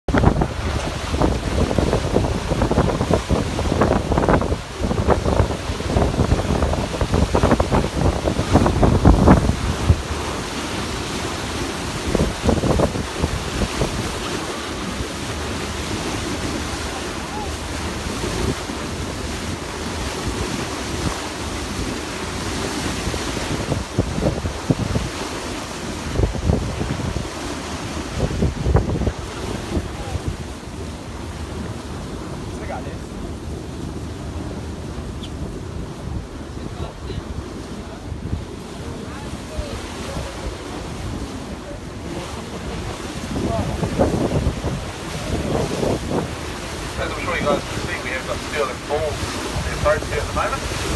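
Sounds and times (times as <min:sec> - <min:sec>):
wind and water rushing: 0:00.0 - 0:50.9
wind buffeting microphone: 0:00.1 - 0:50.9.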